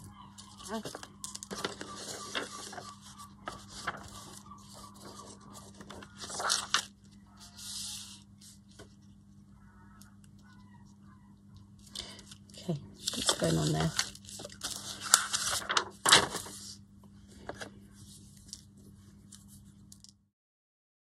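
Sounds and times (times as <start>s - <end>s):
paper and plastic sheet rustling: 0.0s - 9.0s, 13.0s - 16.8s.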